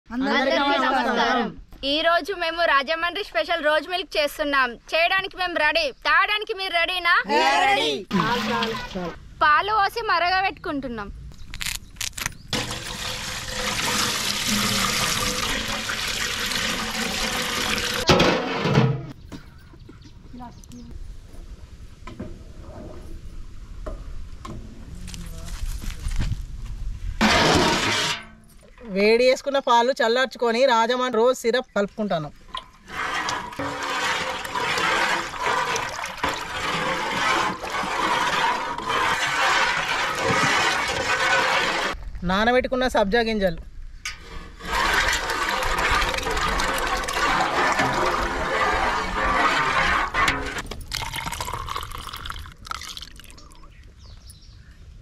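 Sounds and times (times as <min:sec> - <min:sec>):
milk pouring into a pot: 0:12.6 - 0:18.1, 0:33.0 - 0:42.0, 0:44.8 - 0:53.6.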